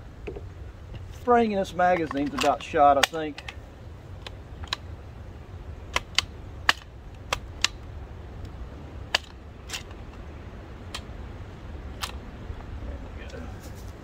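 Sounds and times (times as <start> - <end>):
gun action metal clicks: 1.9 - 3.6, 4.2 - 4.9, 5.9 - 7.8, 9.1 - 10.2.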